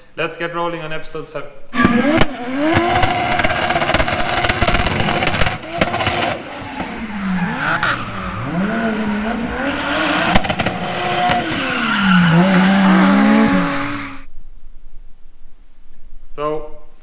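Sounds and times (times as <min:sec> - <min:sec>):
turbocharged engine revving: 0:01.8 - 0:14.3
tyres squealing: 0:06.7 - 0:14.3.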